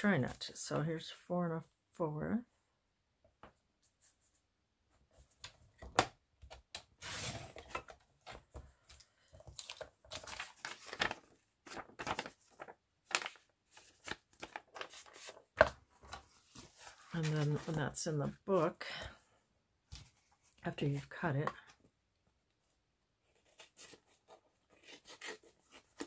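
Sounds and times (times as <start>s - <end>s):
paper rustling: 6.5s - 18.4s.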